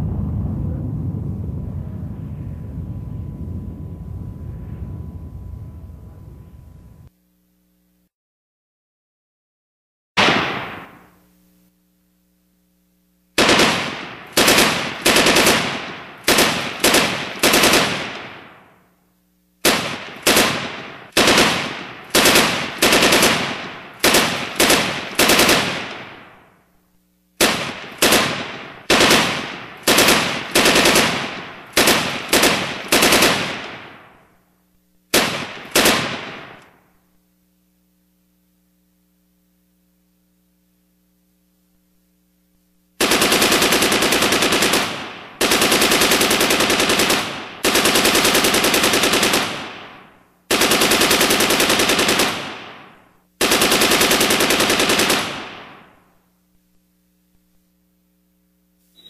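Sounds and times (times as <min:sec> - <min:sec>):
automatic machine-gun fire: 0:10.2 - 0:11.2, 0:13.4 - 0:18.9, 0:19.6 - 0:26.6, 0:27.4 - 0:34.4, 0:35.1 - 0:36.9, 0:43.0 - 0:56.2
gunshots with echoing tail: 0:10.2 - 0:11.2, 0:13.4 - 0:18.8, 0:19.6 - 0:26.6, 0:27.4 - 0:34.3, 0:35.1 - 0:36.8, 0:43.0 - 0:56.1.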